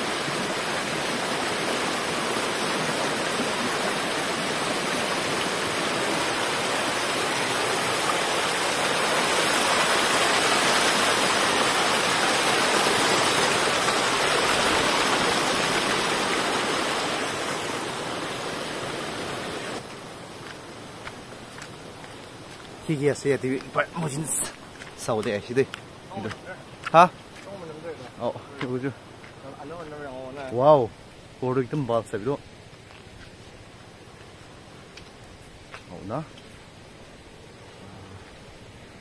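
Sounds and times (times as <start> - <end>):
stream splashing over stones: 0.0 - 30.7.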